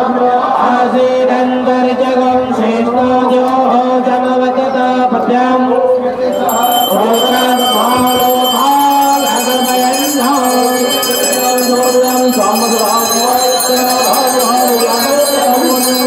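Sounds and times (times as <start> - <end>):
bells ringing: 6.3 - 16.0
person singing devotional song: 6.3 - 16.0.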